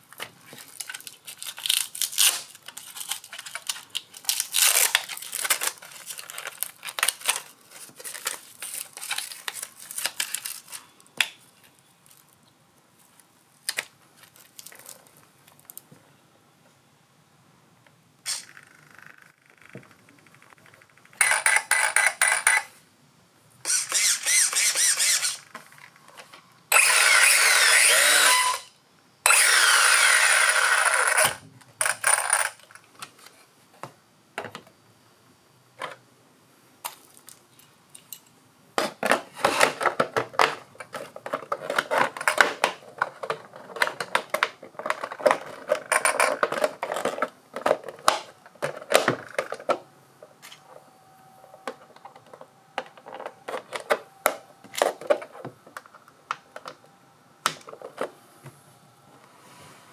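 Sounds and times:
plastic clicks and rattles: 0.2 - 11.4, 18.3 - 22.7, 39.0 - 49.8
electric motor whine: 26.7 - 28.6.

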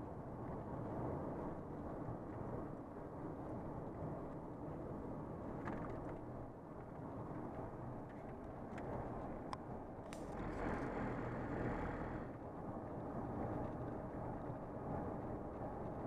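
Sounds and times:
vehicle driving at speed: 10.1 - 16.0.

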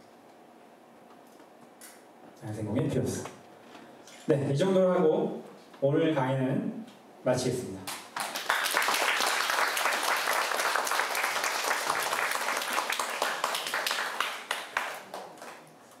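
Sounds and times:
audience applauding: 7.9 - 15.7.

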